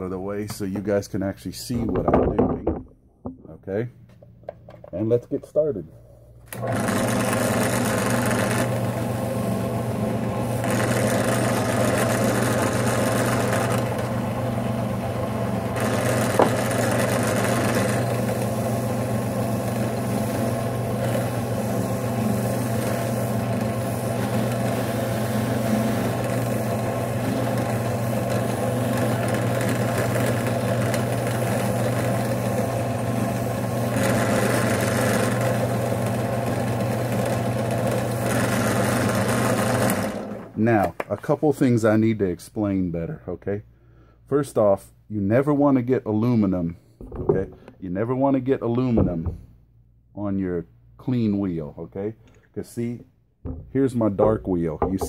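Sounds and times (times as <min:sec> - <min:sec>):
drill press motor hum: 0:06.4 - 0:40.6
hiss of polishing on buffing wheel: 0:18.2 - 0:29.0.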